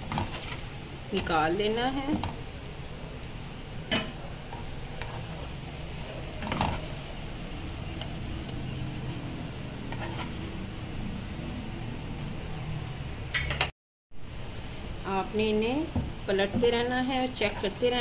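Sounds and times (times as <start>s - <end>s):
faint frying sizzle: 0.0s - 13.0s, 14.2s - 18.0s
spatula scraping frying pan: 4.4s - 7.0s, 9.8s - 10.6s.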